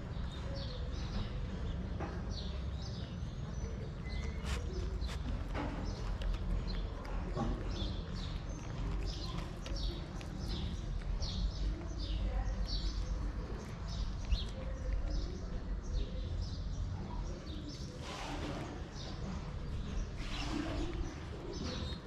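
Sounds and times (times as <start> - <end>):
cat crunching dry kibble: 3.9 - 16.4.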